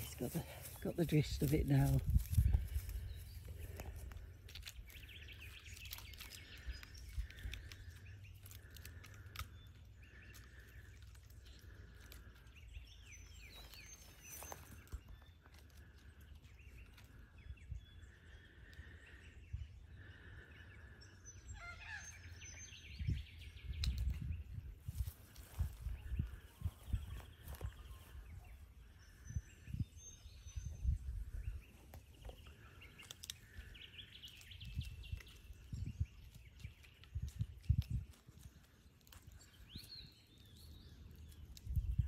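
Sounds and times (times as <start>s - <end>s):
birds chirping: 0.0s - 42.0s
wind rumble on microphone: 1.4s - 4.2s, 21.6s - 32.3s, 33.7s - 38.6s, 39.6s - 42.0s.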